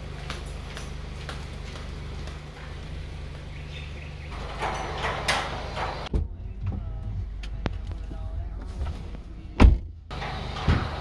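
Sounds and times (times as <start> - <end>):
sandal footsteps on tiled floor: 0.0 - 3.8
car engine idling: 0.0 - 11.0
muffled hum inside car cabin: 5.8 - 11.0.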